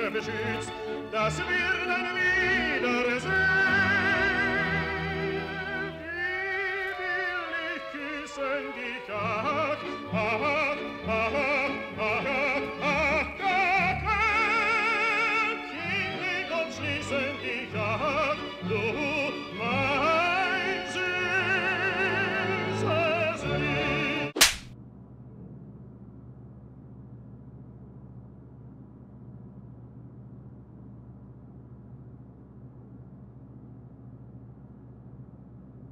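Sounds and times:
low orchestral accompaniment: 0.0s - 24.4s
operatic singing with vibrato: 0.0s - 24.4s.

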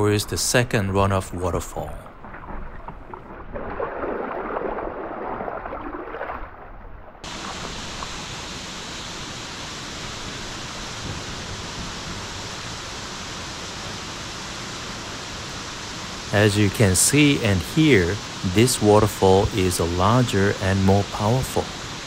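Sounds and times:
water splashing around kayak: 1.4s - 8.5s.

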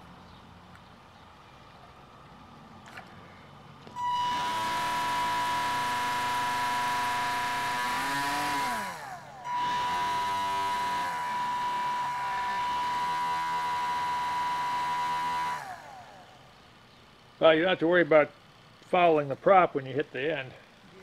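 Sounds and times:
small electric motor whining: 3.8s - 16.8s.

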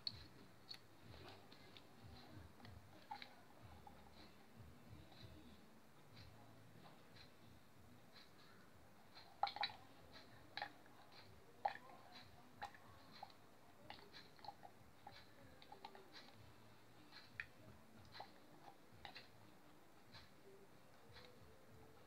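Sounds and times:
oil draining with clicks and pops: 9.1s - 16.3s.

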